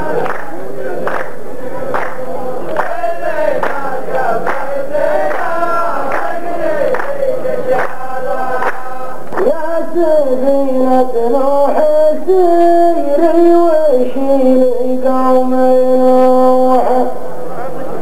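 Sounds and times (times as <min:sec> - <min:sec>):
men's chorus chanting in unison: 0:00.0 - 0:12.3
slow hand claps: 0:00.1 - 0:03.0, 0:03.6 - 0:09.6
man singing through a microphone: 0:06.9 - 0:17.2.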